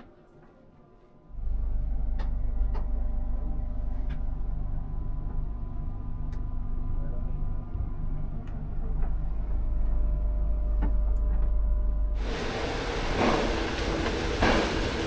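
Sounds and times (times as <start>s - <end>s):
railway carriage low hum: 0.0s - 15.0s
train rushing and rattling: 12.2s - 15.0s.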